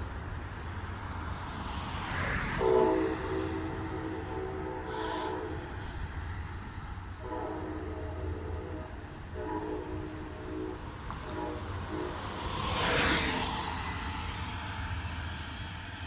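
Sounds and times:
low locomotive rumble: 0.0 - 16.0
locomotive air horn blasts: 2.4 - 6.3, 7.1 - 13.3.

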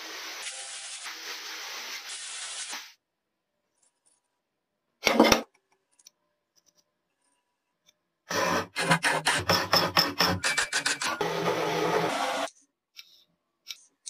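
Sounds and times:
metal scrape: 8.3 - 12.5.

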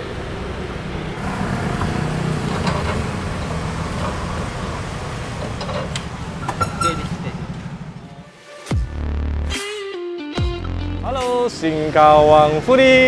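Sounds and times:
road traffic rumble: 0.0 - 9.5, 10.6 - 13.0.

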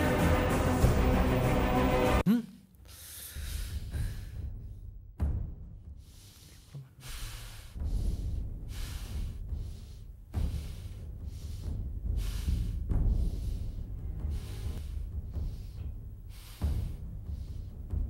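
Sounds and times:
low rumbling suspense music: 0.0 - 2.2, 3.3 - 18.0
person breathing heavily: 2.8 - 4.9, 5.9 - 18.0.

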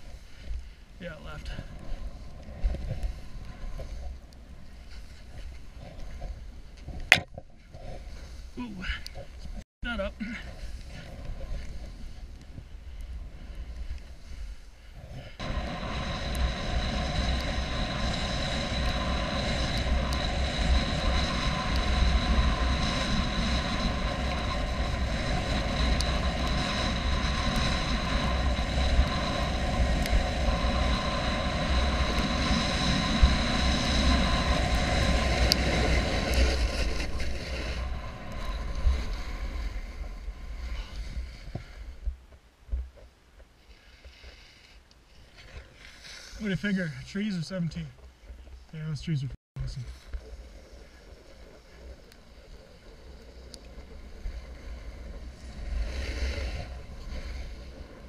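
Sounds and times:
wind buffeting microphone: 1.0 - 43.0
snowboard hissing on snow: 13.3 - 42.0, 45.8 - 47.0, 49.8 - 58.0.

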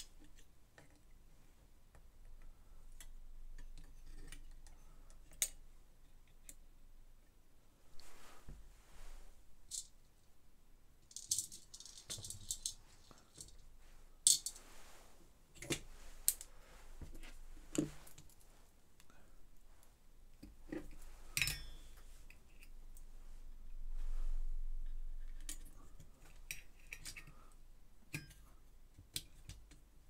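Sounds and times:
small metal parts clicking: 11.1 - 13.6.

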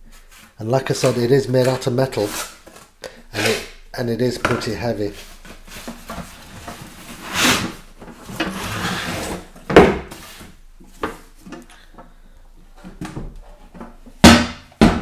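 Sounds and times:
cardboard box scraping and sliding: 5.3 - 9.5.

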